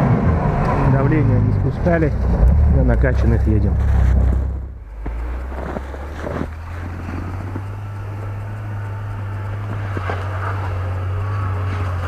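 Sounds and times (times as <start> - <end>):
engine working hard: 0.0 - 12.0.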